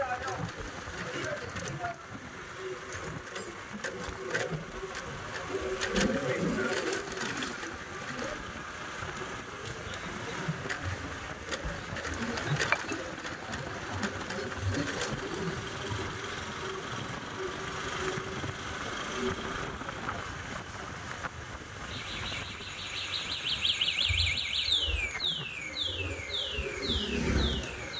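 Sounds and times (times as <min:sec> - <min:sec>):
motorbike engine and wind rush: 0:00.1 - 0:23.7, 0:24.3 - 0:27.9
high downward-sweeping chirps: 0:22.0 - 0:27.9.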